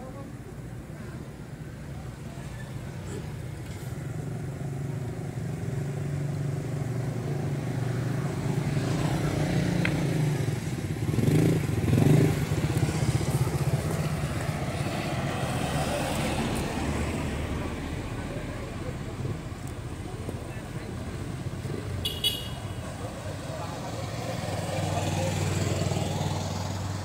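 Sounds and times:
motorcycle engine running: 8.2s - 15.2s.

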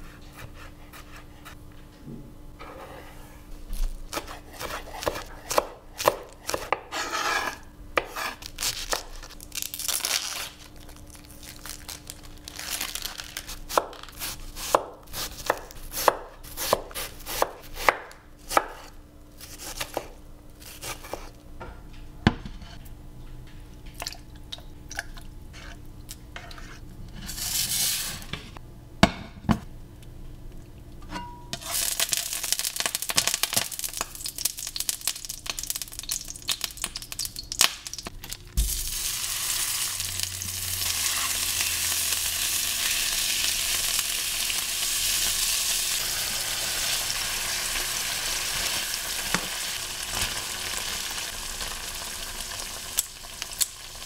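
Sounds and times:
knife chopping on wooden board: 4.1s - 8.4s
oil sizzling in a wok: 31.6s - 54.0s.

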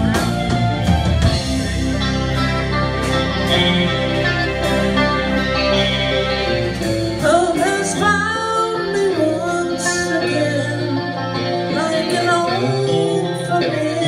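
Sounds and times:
live rock band playing: 0.0s - 14.0s
person singing: 6.9s - 14.0s.

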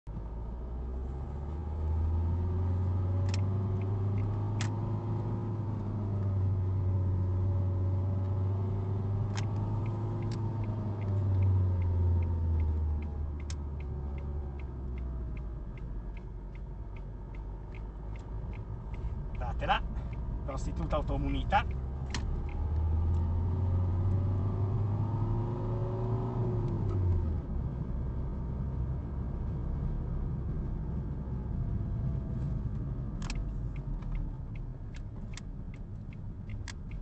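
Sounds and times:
car engine and road noise: 0.0s - 37.0s
sharp clicks: 3.2s - 4.8s, 9.3s - 21.0s, 21.6s - 23.3s, 33.2s - 37.0s.

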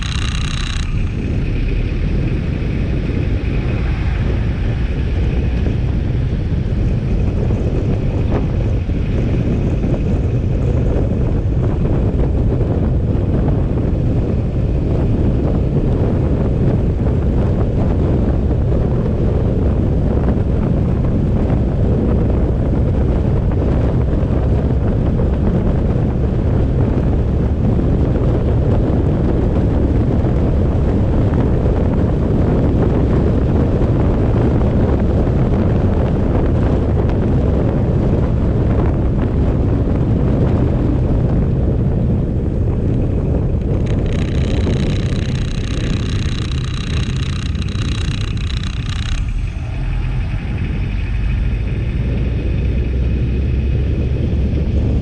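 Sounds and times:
high-pitched multi-tone whine: 0.0s - 10.8s, 43.7s - 55.0s
vehicle road rumble: 0.0s - 55.0s
wind buffeting microphone: 0.0s - 55.0s.

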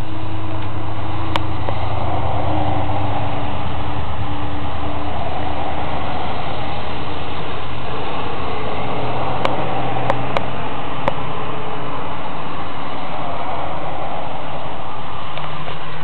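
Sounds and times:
loud rumbling: 0.0s - 16.0s.

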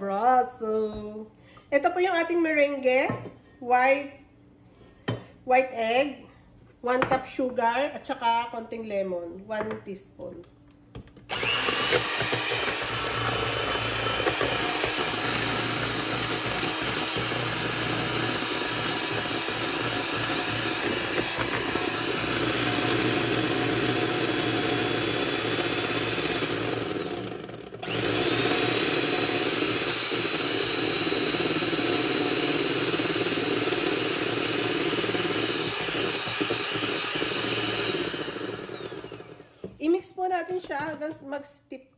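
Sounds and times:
electric hand mixer running: 11.3s - 39.8s.

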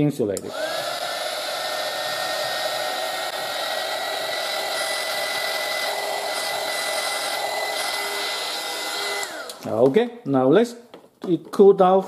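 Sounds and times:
heat gun fan and motor whine: 0.4s - 9.7s.

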